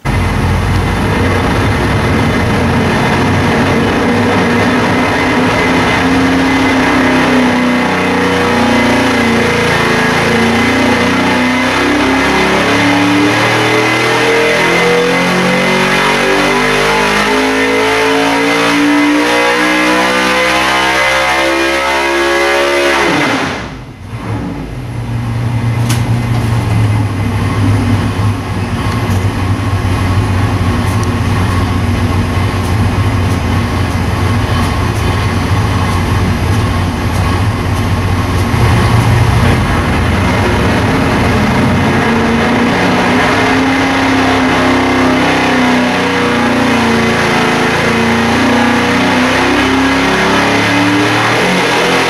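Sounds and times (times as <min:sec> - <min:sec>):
engine revving on dyno: 0:00.0 - 0:52.0.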